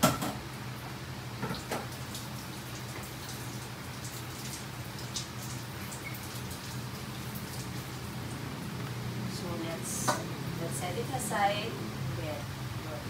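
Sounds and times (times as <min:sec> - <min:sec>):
tap water splashing into sink: 0:01.4 - 0:02.3
steady low hum: 0:06.8 - 0:13.0.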